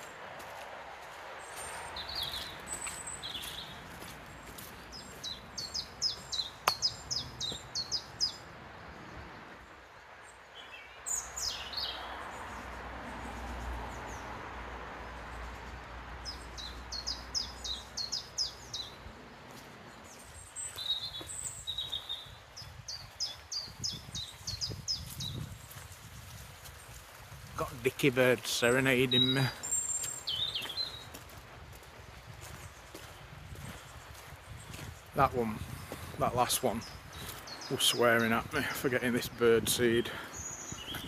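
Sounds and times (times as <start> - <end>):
songbird singing: 0.0 - 41.0
bird chirps: 1.5 - 3.8, 4.5 - 8.4, 10.5 - 12.6, 16.2 - 19.0, 20.0 - 25.4, 28.5 - 31.2, 33.6 - 41.0.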